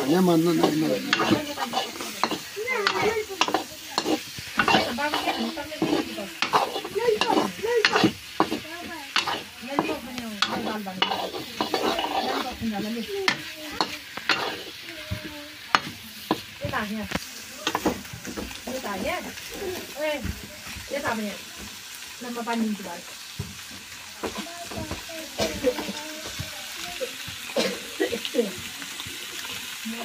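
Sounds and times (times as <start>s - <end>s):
ladle scraping and knocking pan: 0.0s - 16.6s
fish sizzling in hot oil: 0.0s - 30.0s.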